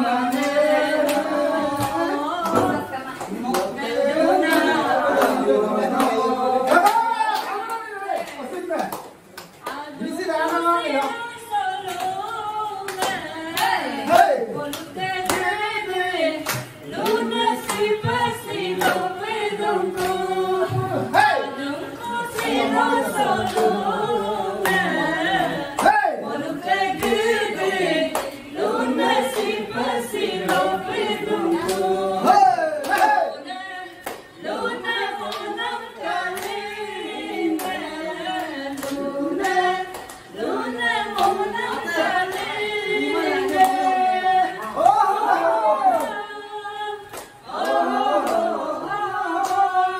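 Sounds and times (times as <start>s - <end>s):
group singing unaccompanied: 0.0s - 8.4s, 9.2s - 49.9s
hand claps: 0.3s - 3.8s, 4.4s - 15.7s, 16.3s - 21.5s, 22.2s - 23.9s, 24.6s - 25.0s, 25.6s - 26.2s, 26.8s - 33.3s, 34.0s - 36.8s, 37.4s - 44.0s, 47.0s - 49.8s.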